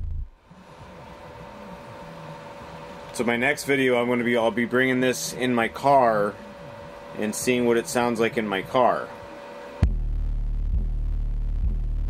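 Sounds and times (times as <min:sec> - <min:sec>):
deep subwoofer bass: 0:00.0 - 0:00.4, 0:09.8 - 0:12.0.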